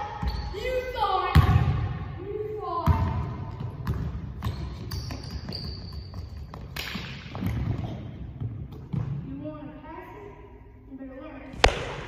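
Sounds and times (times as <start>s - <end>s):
basketball bouncing on hardwood: 2.8s - 6.7s.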